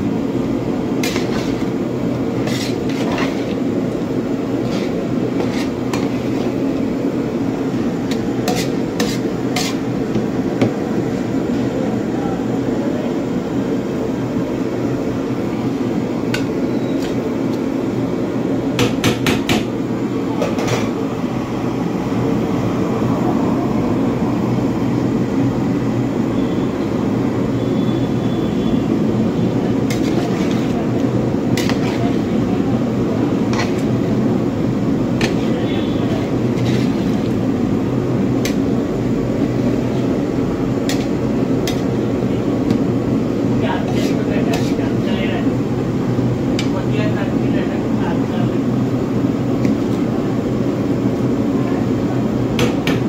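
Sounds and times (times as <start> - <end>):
metal spoon clanking against pot: 31.6 - 32.0.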